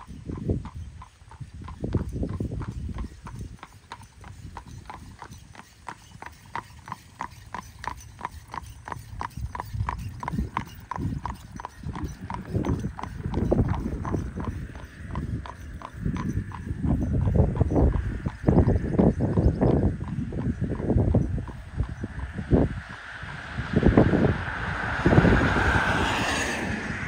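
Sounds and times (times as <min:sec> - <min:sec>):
horse hooves clip-clopping on asphalt: 0:00.0 - 0:26.9
low rumbling: 0:16.1 - 0:27.0.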